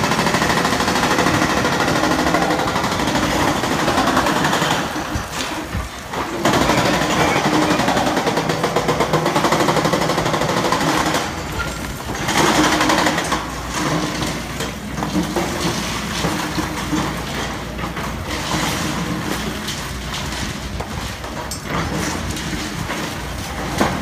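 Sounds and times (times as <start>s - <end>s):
excavator engine running: 0.0s - 16.4s
excavator hammering concrete: 0.0s - 19.6s.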